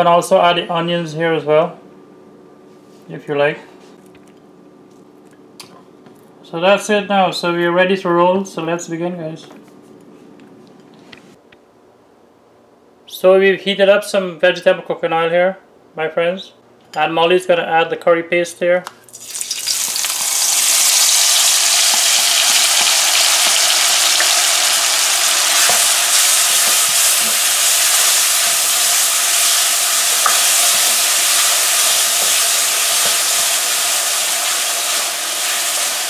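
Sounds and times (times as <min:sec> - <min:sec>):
onions sizzling in hot oil: 0:19.1 - 0:36.0.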